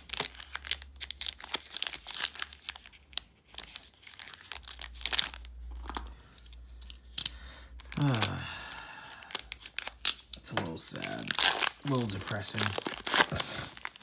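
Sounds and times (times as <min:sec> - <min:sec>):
foil wrapper ripping: 0:00.0 - 0:05.6, 0:09.2 - 0:14.0
foil wrapper crinkling: 0:00.0 - 0:08.4, 0:09.1 - 0:14.0.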